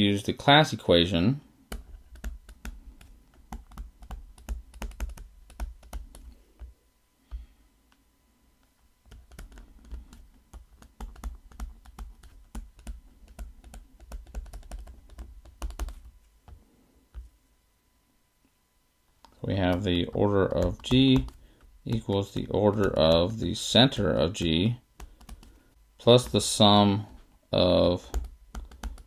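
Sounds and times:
stylus tapping on tablet screen: 0:01.7 - 0:06.7, 0:09.1 - 0:17.3, 0:19.2 - 0:23.3, 0:24.4 - 0:26.4, 0:28.1 - 0:29.0.

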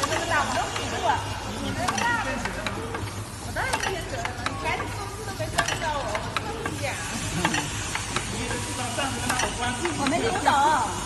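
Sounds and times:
machine clicks and clacks: 0:00.0 - 0:11.0.

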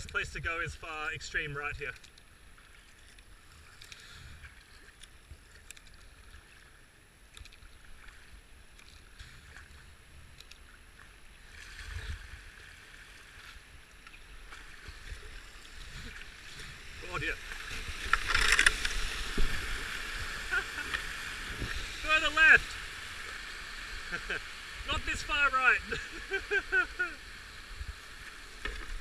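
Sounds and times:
paddle splashing in water: 0:02.5 - 0:29.0
rushing whitewater: 0:14.3 - 0:29.0.

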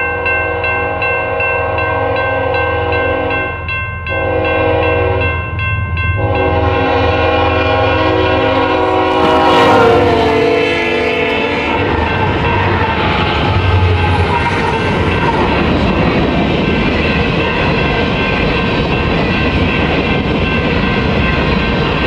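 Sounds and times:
train rumble: 0:00.0 - 0:22.0
locomotive air horn: 0:00.4 - 0:03.5, 0:04.1 - 0:05.4, 0:06.2 - 0:12.1
locomotive engine: 0:06.2 - 0:22.0.

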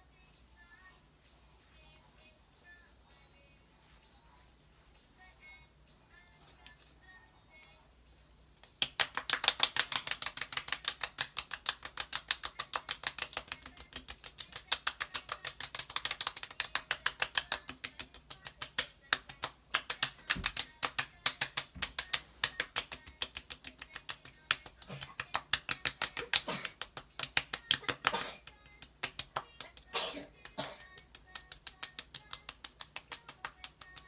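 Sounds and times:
palms patting face: 0:08.6 - 0:34.0.

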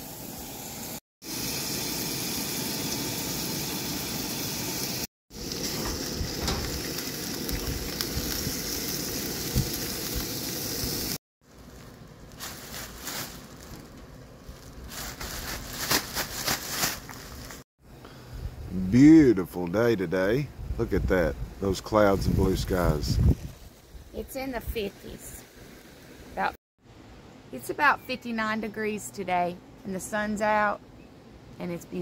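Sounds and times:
camp stove burner hissing: 0:00.0 - 0:11.2
plastic bag crackling: 0:11.4 - 0:17.6.

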